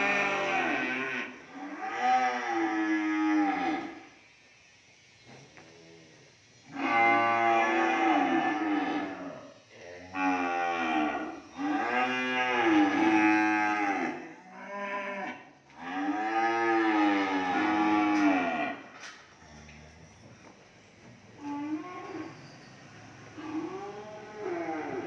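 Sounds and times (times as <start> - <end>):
cattle mooing: 6.7 - 9.4, 10.0 - 20.2, 23.4 - 25.0.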